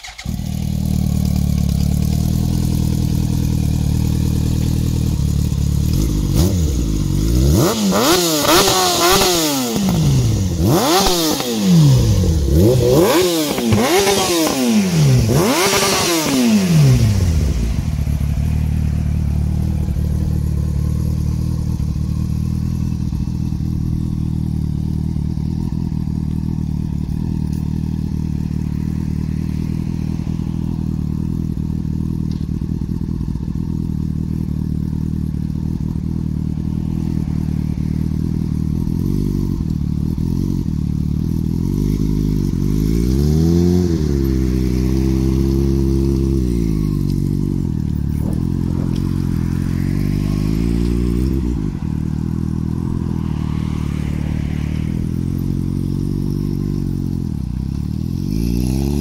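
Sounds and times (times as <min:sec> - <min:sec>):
motorcycle engine idling and revving: 0:00.0 - 0:59.0.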